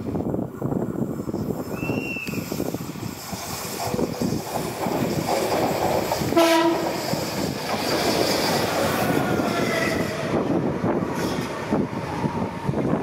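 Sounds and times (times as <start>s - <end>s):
train wheels rumbling on rail: 0.0s - 13.0s
train horn blast: 6.4s - 7.1s.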